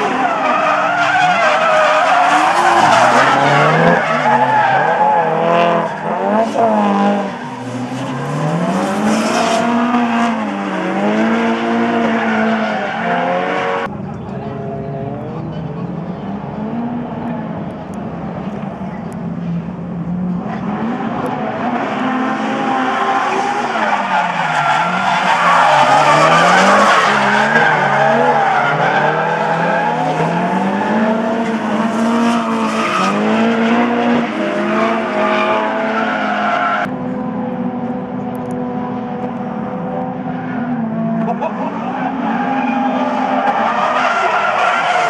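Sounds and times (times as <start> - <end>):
tyres squealing and skidding: 0.0 - 13.9, 20.4 - 36.9, 40.1 - 45.0
car engines revving: 0.0 - 45.0.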